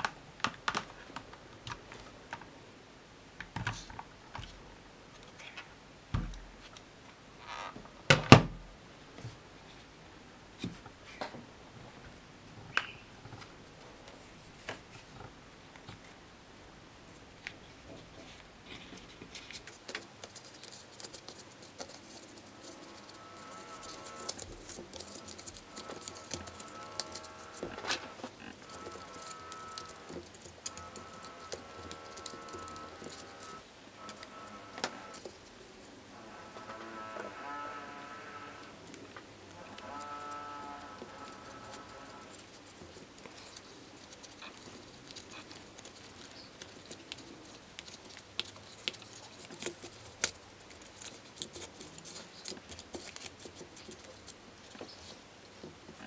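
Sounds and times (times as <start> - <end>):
plastic parts clicking and tapping: 0.0 - 2.5.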